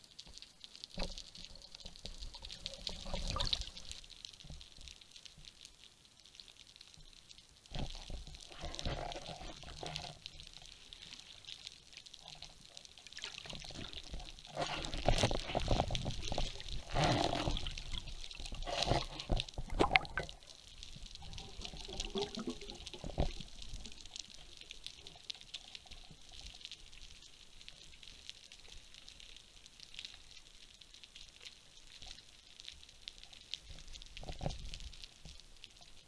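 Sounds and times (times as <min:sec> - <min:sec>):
steady hiss: 0:00.0 - 0:36.0
water rushing and gurgling: 0:13.4 - 0:20.5.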